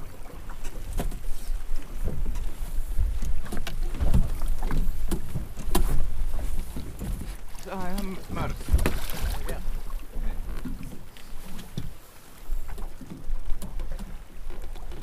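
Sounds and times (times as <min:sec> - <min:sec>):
wind rumbling on microphone: 0:00.0 - 0:15.0
boat knocking in water: 0:01.9 - 0:12.0.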